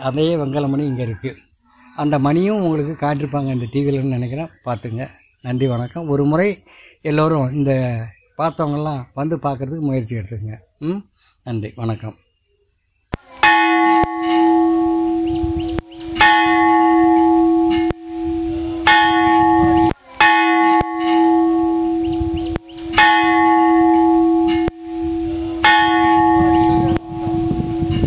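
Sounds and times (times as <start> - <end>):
large bell ringing: 13.3 - 28.0.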